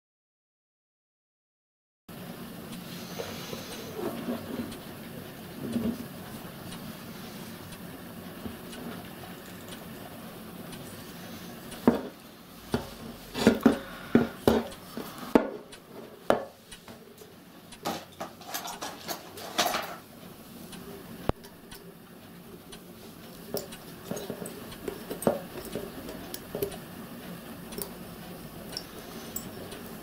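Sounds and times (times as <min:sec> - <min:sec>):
metal burner parts clinking: 0:17.8 - 0:20.0.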